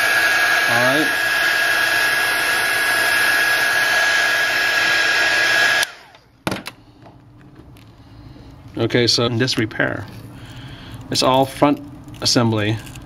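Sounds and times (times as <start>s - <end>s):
heat gun blowing with whine: 0.0s - 6.3s.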